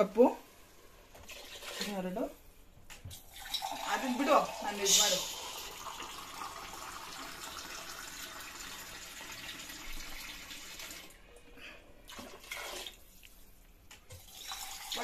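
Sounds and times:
water pouring into a pot: 3.2s - 11.3s, 12.0s - 13.2s, 14.1s - 15.0s.

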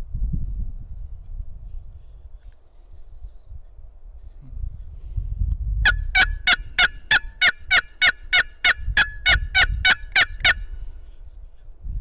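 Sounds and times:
turkey box call yelps: 5.8s - 10.6s.

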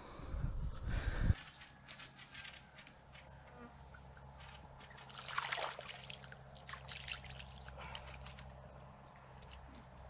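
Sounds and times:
shallow water splashing: 4.9s - 8.6s.

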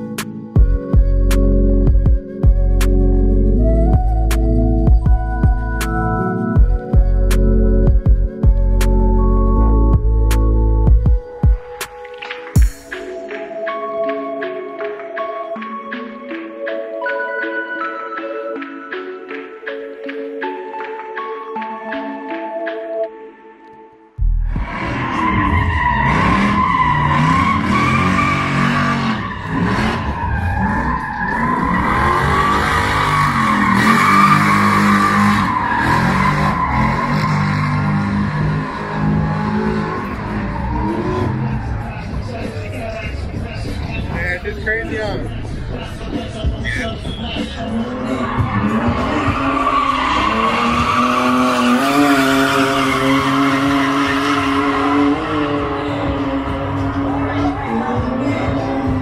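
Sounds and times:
truck engine revving: 24.2s - 44.2s, 45.3s - 59.0s
tires squealing: 24.5s - 59.0s.

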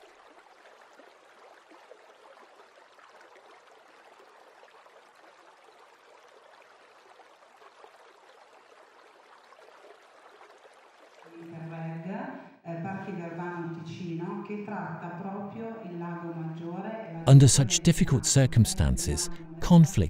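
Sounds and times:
water trickling: 0.0s - 11.7s.

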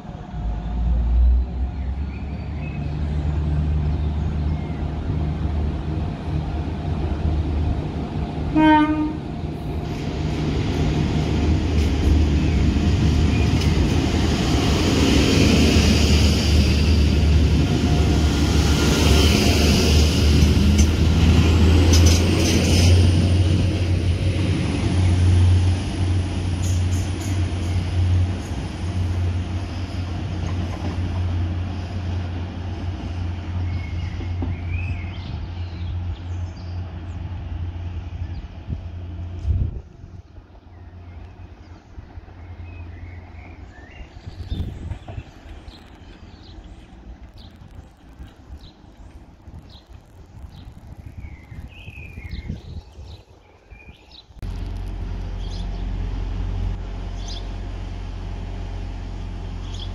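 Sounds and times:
train diesel engine droning: 0.0s - 44.1s, 54.4s - 59.9s
wind rumble on microphone: 33.7s - 40.6s, 44.1s - 55.8s
small birds chirping: 40.6s - 54.4s.

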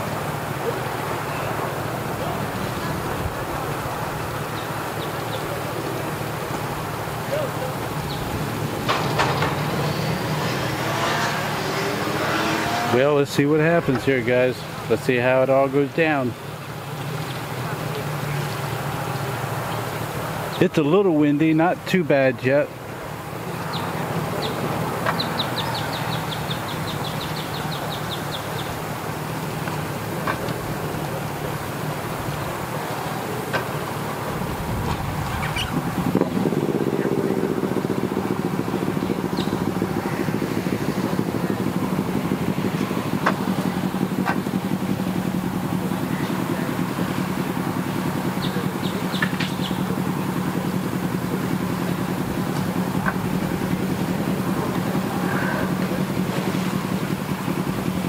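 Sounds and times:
engine idling: 0.0s - 10.8s, 12.9s - 58.0s
bird chirping rapidly: 25.2s - 28.8s, 35.2s - 35.9s, 38.7s - 39.7s, 48.4s - 49.9s
wind noise: 34.3s - 37.4s.

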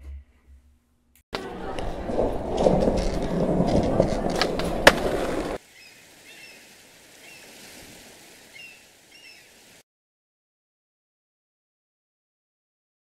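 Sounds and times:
faint outdoor ambience: 0.3s - 9.8s
skateboard clack: 1.4s - 5.6s
skateboard wheels rolling: 1.4s - 5.6s
high bird chirps: 5.8s - 6.6s, 8.5s - 9.6s.

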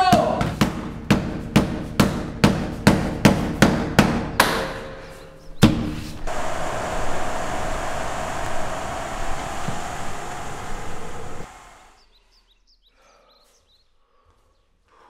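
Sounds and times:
outdoor wind rushing: 6.2s - 12.0s.

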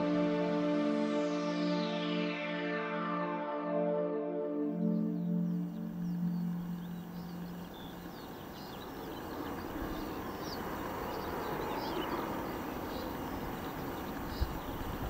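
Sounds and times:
background music: 0.0s - 14.2s
birds chirping: 4.6s - 15.0s.

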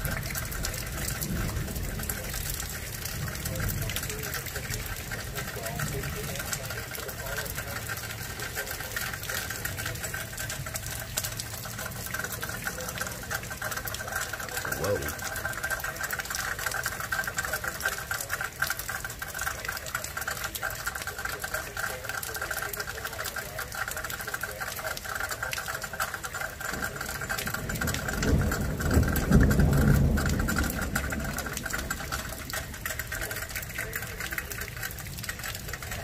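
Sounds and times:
thunder rumbling: 0.0s - 6.4s, 26.8s - 33.2s
heavy rain pattering: 0.0s - 36.0s.

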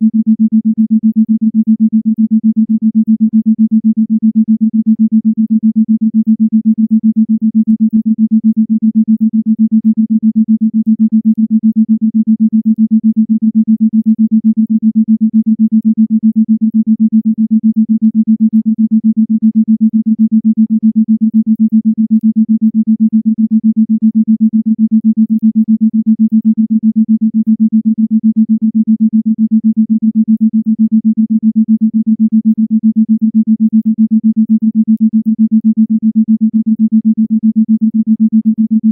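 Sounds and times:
pulsed low electronic tone: 10.8s - 38.9s.

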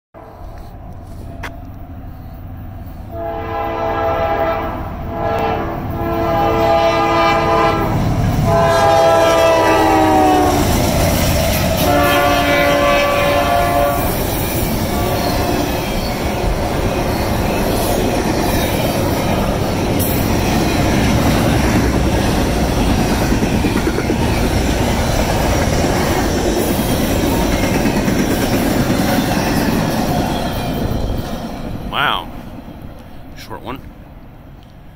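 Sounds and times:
locomotive air horn blasts: 3.1s - 10.7s, 11.8s - 14.2s.

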